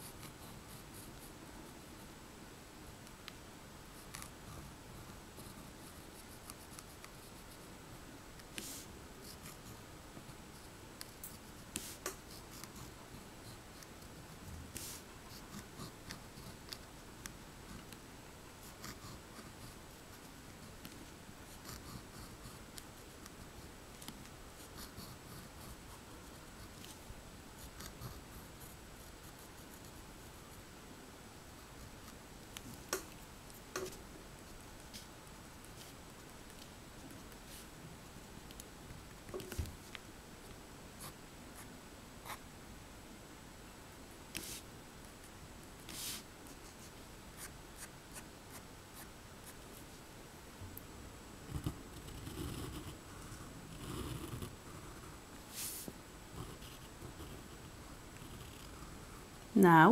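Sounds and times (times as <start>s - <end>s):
pen scratching on paper: 10.5s - 14.1s, 18.6s - 27.0s, 27.6s - 30.4s, 51.5s - 55.8s, 56.4s - 57.6s.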